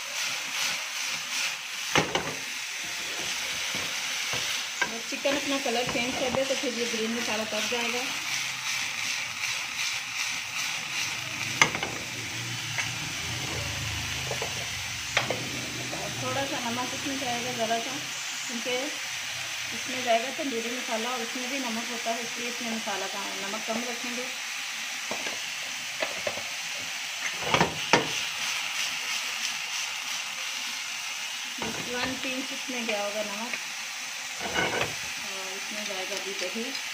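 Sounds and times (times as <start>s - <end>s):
chicken sizzling in oil: 0.0s - 36.9s
spatula knocking and scraping pan: 1.9s - 2.4s, 3.0s - 6.6s, 11.6s - 12.1s, 14.2s - 15.5s, 34.4s - 35.0s
pan knocking on stove grate: 11.6s - 12.1s.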